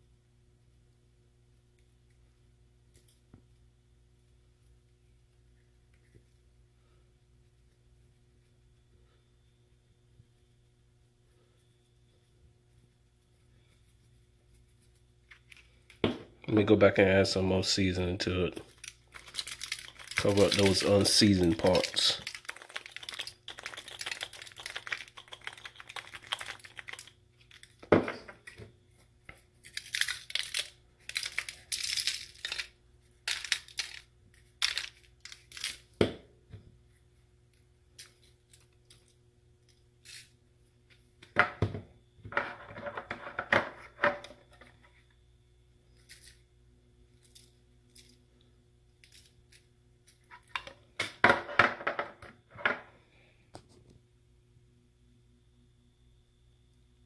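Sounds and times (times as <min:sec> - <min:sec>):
aluminium foil crinkling: 0:18.5 - 0:27.8, 0:29.3 - 0:35.9
spice shaker shaking: 0:18.6 - 0:27.8, 0:29.6 - 0:35.9.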